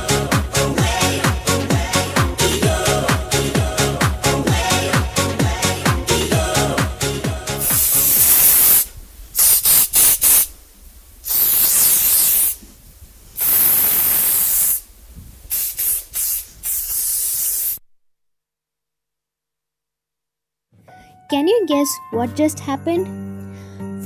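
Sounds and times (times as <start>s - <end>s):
spray hissing in bursts: 7.6s - 10.6s, 11.2s - 12.7s, 13.3s - 17.8s.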